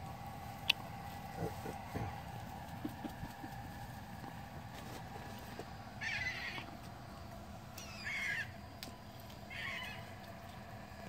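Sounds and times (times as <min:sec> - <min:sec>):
steady low hum: 0:00.0 - 0:11.0
gulls squawking: 0:06.0 - 0:06.8, 0:07.8 - 0:08.6, 0:09.4 - 0:10.2.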